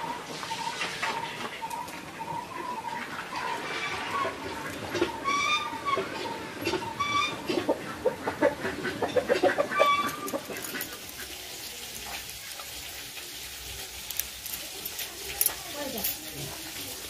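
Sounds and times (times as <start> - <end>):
chicken high pitched calls: 0.0 - 8.2, 9.3 - 11.0
chickens clucking: 0.0 - 17.0.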